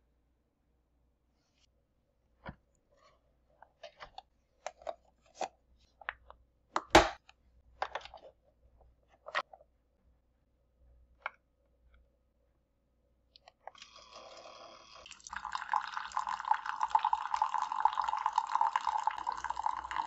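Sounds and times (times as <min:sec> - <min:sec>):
plastic lid clicks and clunks: 0:03.9 - 0:08.2.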